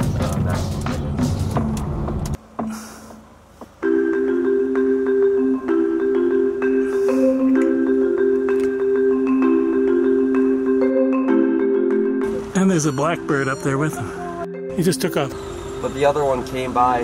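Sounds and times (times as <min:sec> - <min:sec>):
music of struck ringing notes: 0:03.8 - 0:17.0.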